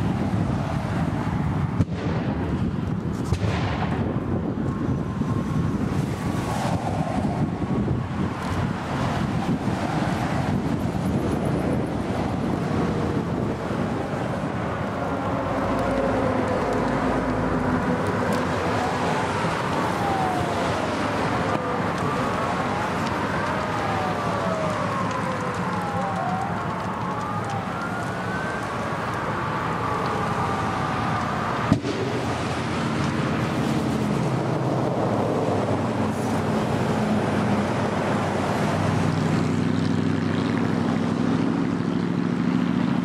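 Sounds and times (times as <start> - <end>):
sirens wailing: 0.0 - 2.9, 3.9 - 43.0
steady rushing noise: 0.0 - 39.5
sharp pop: 1.8 - 2.4, 3.2 - 4.1, 31.7 - 32.2.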